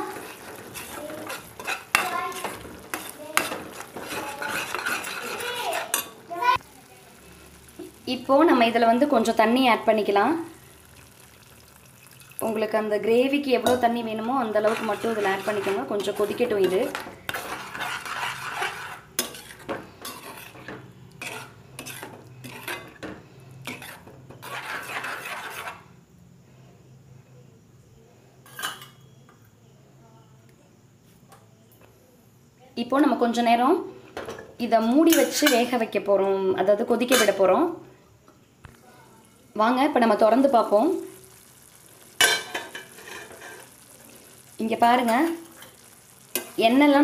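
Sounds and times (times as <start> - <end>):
spatula stirring thick gravy: 0.0 - 8.0, 14.2 - 25.9
metal clinks and scrapes on pan: 0.2 - 6.2, 28.4 - 29.0.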